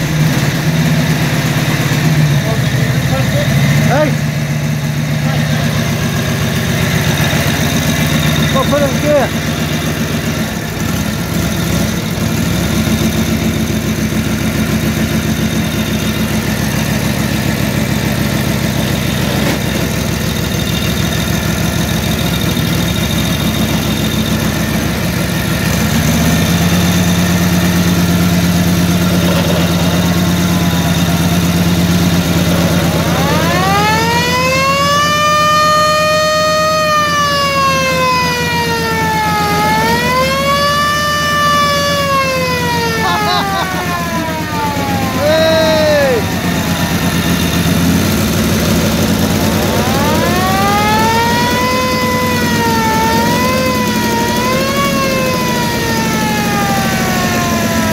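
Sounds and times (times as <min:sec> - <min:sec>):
motorcycle engine running: 0:00.0 - 0:57.9
siren wailing: 0:26.6 - 0:57.9.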